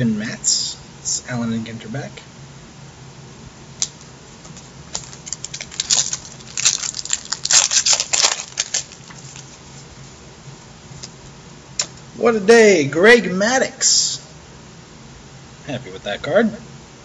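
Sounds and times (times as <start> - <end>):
cards shuffled by hand: 4.4 - 9.9.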